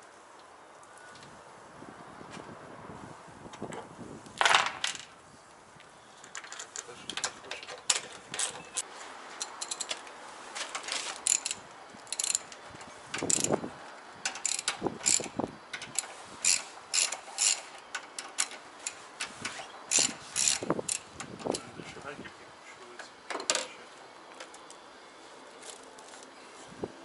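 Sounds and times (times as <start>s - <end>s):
ratchet wrench clicking: 9.4s - 10.0s, 11.2s - 12.6s, 13.2s - 13.6s, 14.3s - 19.0s, 19.9s - 21.5s.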